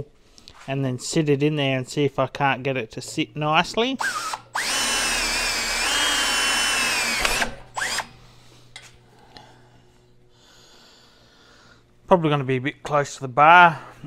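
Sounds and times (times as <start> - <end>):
power drill whining: 4.0 - 8.8.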